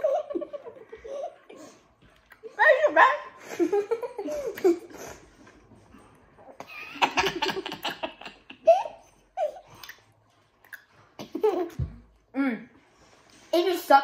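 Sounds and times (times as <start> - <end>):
children giggling and laughing: 0.0 - 2.0, 3.4 - 5.6, 6.6 - 9.7.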